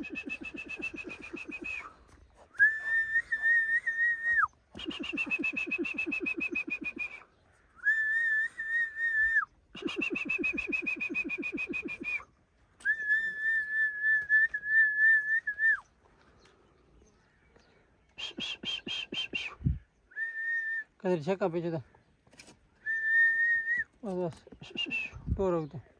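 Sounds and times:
person whistling: 0.0 - 15.8, 18.2 - 20.9, 22.8 - 23.9.

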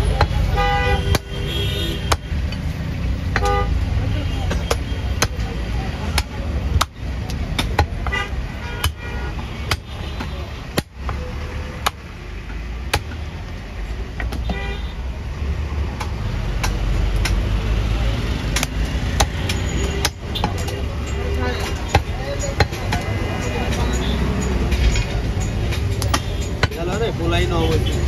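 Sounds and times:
traffic rumble: 0.0 - 28.0
car horn toots: 0.4 - 2.2.

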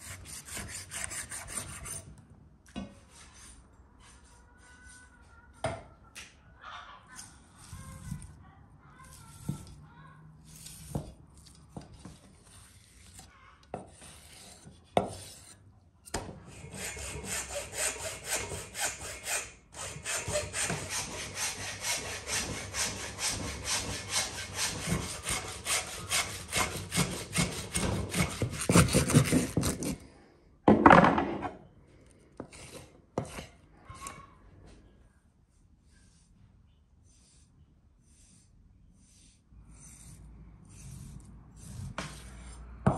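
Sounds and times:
saw cutting: 16.6 - 30.0.

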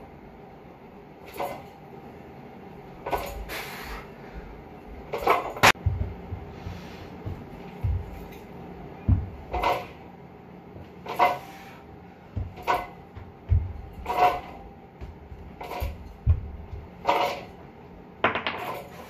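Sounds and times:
barbell plates knocking and rattling: 7.2 - 10.0, 12.4 - 17.5, 18.2 - 19.0.

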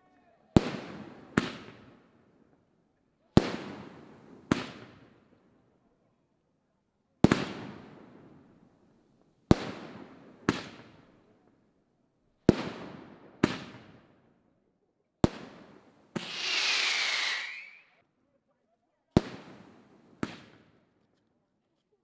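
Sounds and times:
fireworks bangs with echo: 0.6 - 2.0, 3.4 - 5.2, 7.2 - 8.6, 9.5 - 11.1, 12.5 - 14.2, 15.2 - 17.8, 19.2 - 20.8
firework hiss with falling whistle: 16.2 - 18.0.

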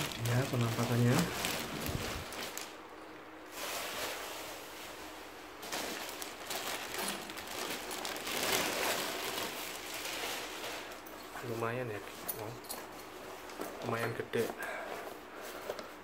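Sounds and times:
plastic bag crinkling: 0.0 - 2.9, 3.5 - 12.0.

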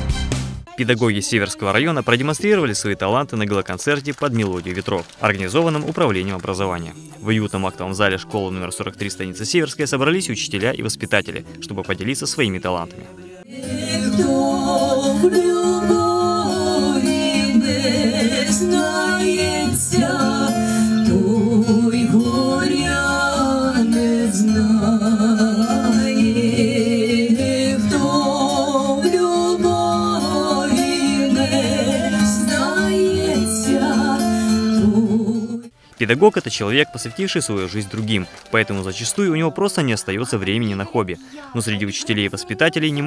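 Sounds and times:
two women singing a duet: 13.2 - 35.7.

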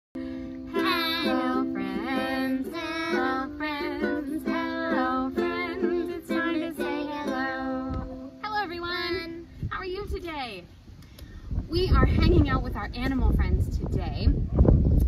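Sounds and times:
ukulele strumming chords: 0.2 - 9.3
person singing: 0.7 - 8.5.

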